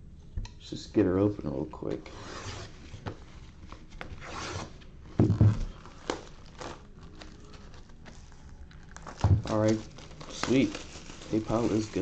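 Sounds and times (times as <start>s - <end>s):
plastic crinkling and scraping: 2.6s - 12.0s
thump on cardboard box: 5.2s - 5.7s
shrink wrap being torn off: 5.7s - 12.0s.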